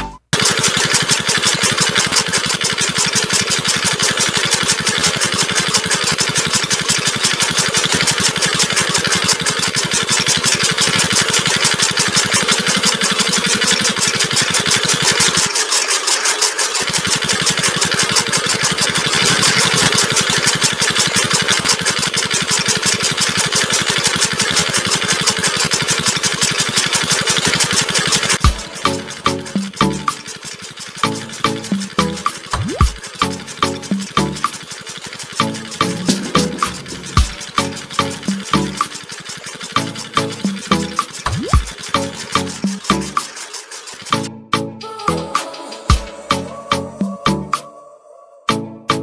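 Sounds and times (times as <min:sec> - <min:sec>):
small electric motor buzzing: 0:00.4 - 0:44.3.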